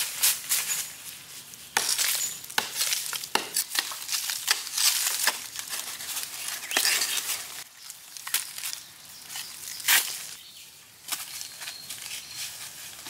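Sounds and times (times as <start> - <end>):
hoe striking hard earth: 1.8 - 5.4
clods crunching and crumbling: 1.8 - 10.4.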